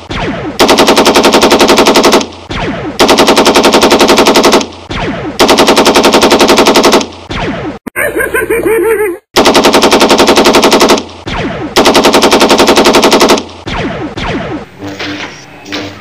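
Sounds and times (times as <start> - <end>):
machine-gun bursts: 0.6 - 2.2, 3.0 - 4.6, 5.4 - 7.0, 9.4 - 11.0, 11.8 - 13.4.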